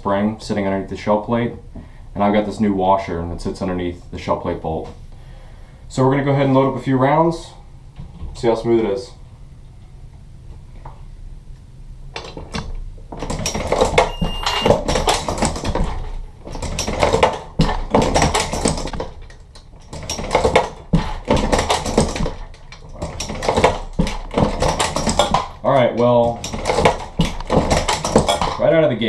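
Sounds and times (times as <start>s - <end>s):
reloading press metallic clacking: 12.2s - 28.6s.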